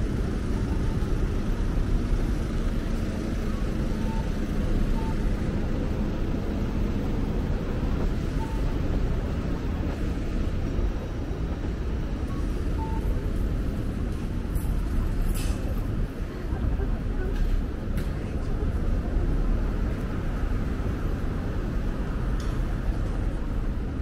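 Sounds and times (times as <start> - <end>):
street traffic rumble: 0.0 - 24.0
faint short beeps: 4.0 - 5.2, 8.4 - 8.8, 12.3 - 13.2.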